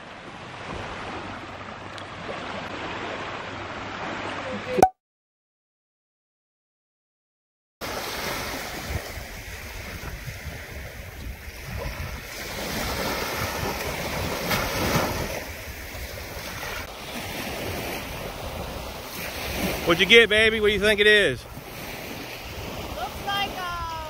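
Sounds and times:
small waves washing ashore: 0:00.0 - 0:04.7, 0:07.8 - 0:24.0
wind on microphone: 0:08.3 - 0:19.9, 0:21.4 - 0:24.0.

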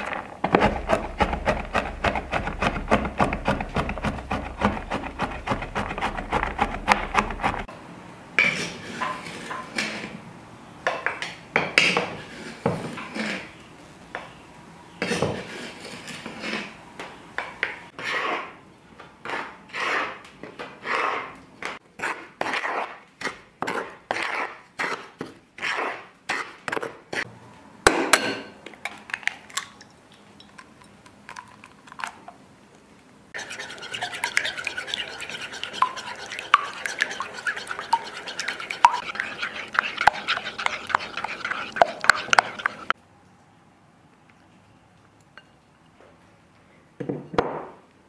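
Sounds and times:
wooden spoon scraping flour: 0:00.0 - 0:07.7, 0:11.9 - 0:13.6, 0:15.0 - 0:16.8, 0:18.0 - 0:18.6, 0:19.2 - 0:21.4, 0:22.0 - 0:27.3, 0:33.4 - 0:43.0
utensil stirring liquid in bowl: 0:00.1 - 0:07.7, 0:33.4 - 0:43.0.

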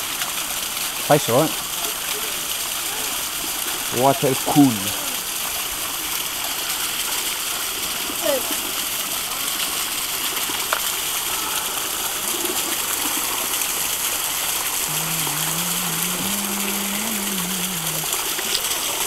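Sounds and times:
spring water running and splashing: 0:00.0 - 0:19.0
low wavering hum: 0:14.8 - 0:18.6.

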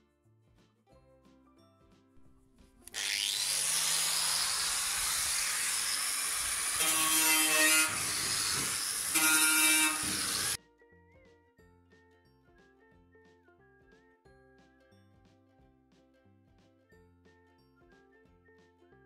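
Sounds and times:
angle grinder on steel: 0:02.9 - 0:10.6.

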